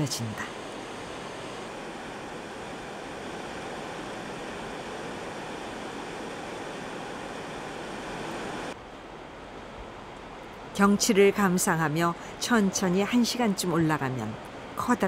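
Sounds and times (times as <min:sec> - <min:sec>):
stream rushing over rocks: 0:00.1 - 0:08.8.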